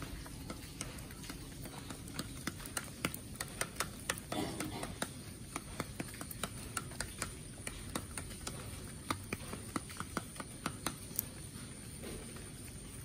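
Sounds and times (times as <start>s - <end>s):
chickens pecking beak taps: 0.0s - 12.8s.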